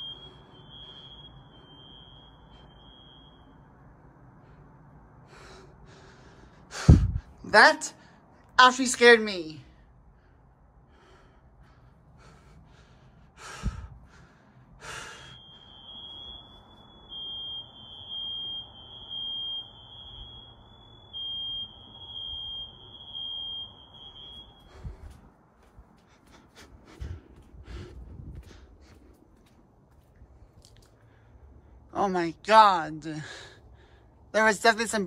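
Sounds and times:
muffled smoke alarm tone: 0.0s - 4.0s, 14.8s - 25.2s.

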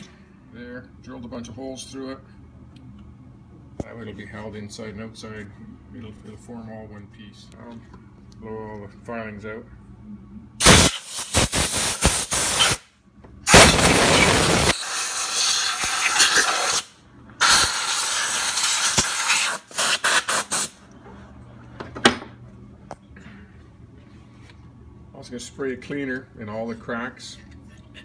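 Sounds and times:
compressed air blasts hissing: 10.6s - 12.9s, 13.5s - 20.8s.

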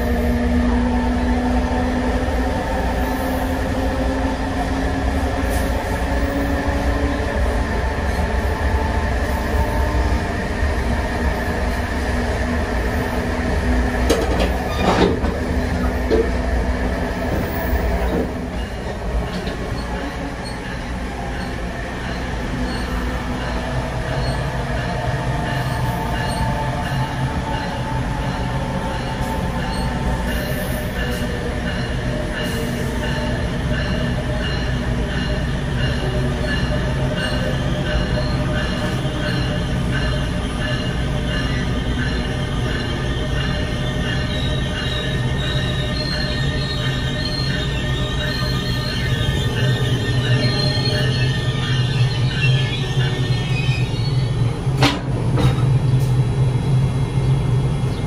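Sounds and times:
low rumble of moving train: 0.0s - 58.0s
train wheels clattering: 14.0s - 16.4s, 54.8s - 56.2s.

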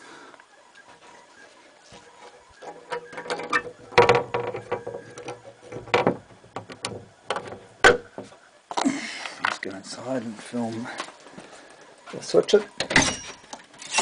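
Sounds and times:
hardware clicking and knocking: 2.6s - 8.3s.

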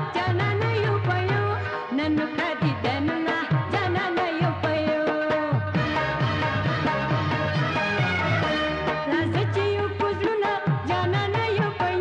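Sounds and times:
film-song music: 5.7s - 10.3s.

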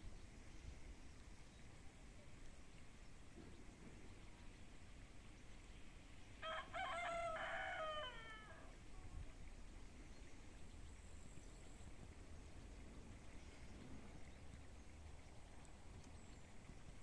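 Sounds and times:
rooster crowing: 6.4s - 8.7s.

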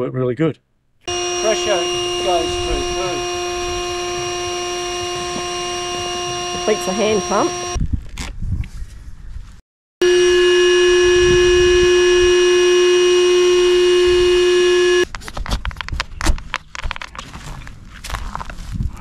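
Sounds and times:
electric air pump humming: 1.1s - 7.8s, 10.0s - 15.0s.

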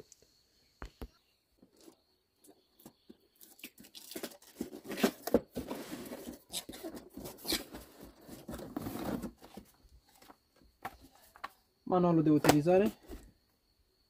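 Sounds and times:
cardboard box being opened: 4.1s - 10.3s.

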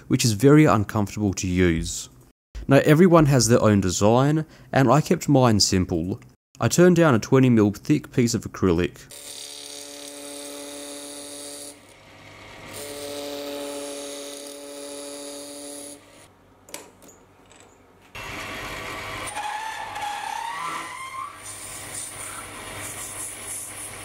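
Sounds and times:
lathe cutting acrylic: 9.1s - 16.2s, 18.2s - 24.0s.

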